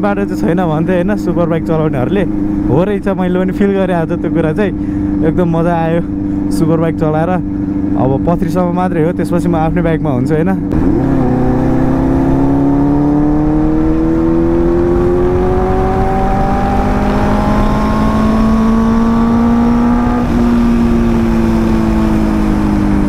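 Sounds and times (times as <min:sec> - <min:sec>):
motorcycle engine accelerating: 0:00.0 - 0:23.0
wind rushing over microphone: 0:10.7 - 0:23.0.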